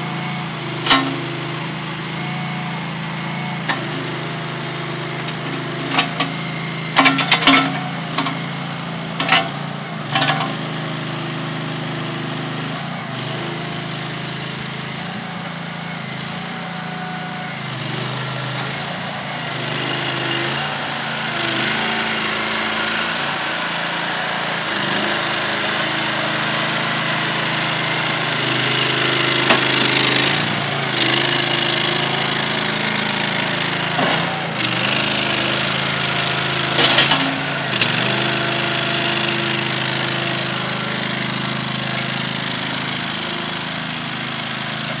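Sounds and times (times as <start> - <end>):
small engine running: 0.0 - 45.0.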